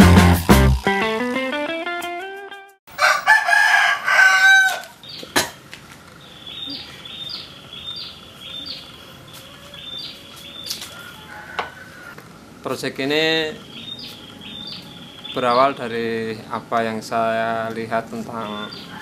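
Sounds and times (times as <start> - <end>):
rooster crowing: 2.9 - 5.1, 9.1 - 12.2, 18.4 - 19.0
faint bird chirps: 6.2 - 12.2.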